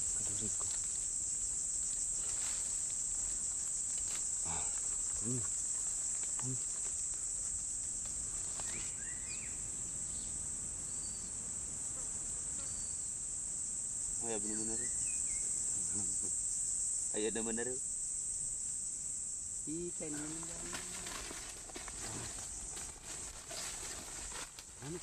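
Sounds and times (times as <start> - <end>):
forest insects chorus: 0.0 - 25.0
man murmuring: 4.5 - 5.5, 6.4 - 6.6, 24.8 - 25.0.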